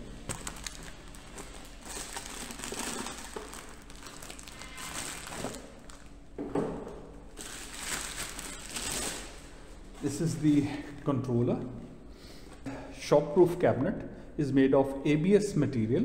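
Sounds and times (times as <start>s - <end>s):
plastic wrapping crinkling: 0.0s - 6.2s, 7.3s - 10.4s.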